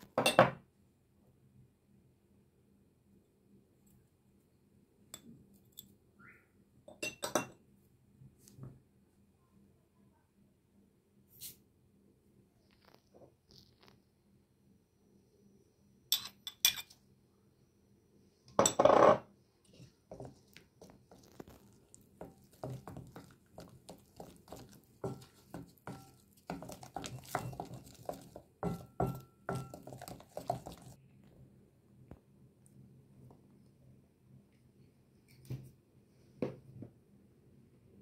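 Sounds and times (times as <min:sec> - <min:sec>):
wooden spoon stirring in bowl: 0:19.7 - 0:31.0.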